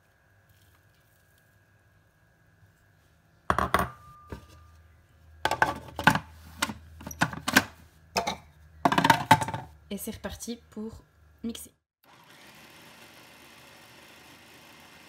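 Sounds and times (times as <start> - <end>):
glass bowl clinking down: 3.5 - 4.7
plastic lid clattering: 5.5 - 9.7.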